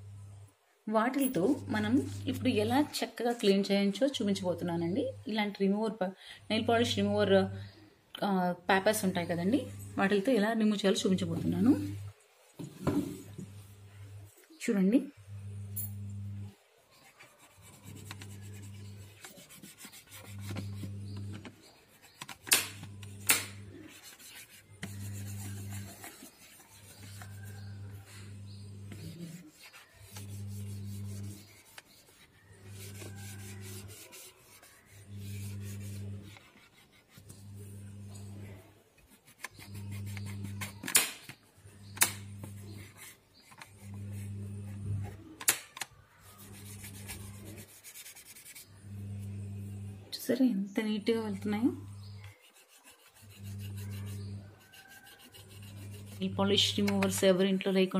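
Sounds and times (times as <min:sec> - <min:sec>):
pad wiping plastic switch plate: 0:17.0 - 0:38.3, 0:46.2 - 0:48.6, 0:52.0 - 0:57.2.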